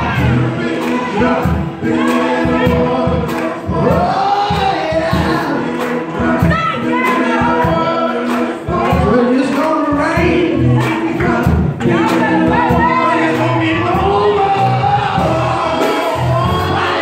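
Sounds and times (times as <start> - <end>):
drum kit: 0.0 - 17.0
men singing gospel: 0.0 - 17.0.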